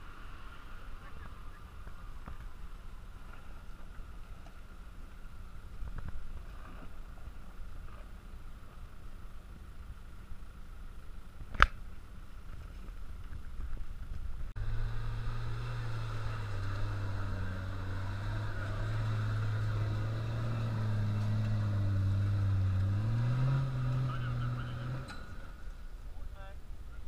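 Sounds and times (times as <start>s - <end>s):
suv engine pulling at low revs: 0.0s - 27.0s.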